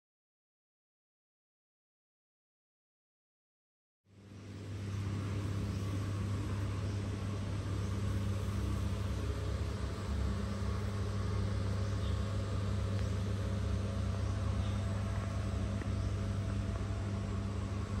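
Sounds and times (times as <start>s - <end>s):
constant hiss: 4.1s - 18.0s
steady low hum: 4.1s - 18.0s.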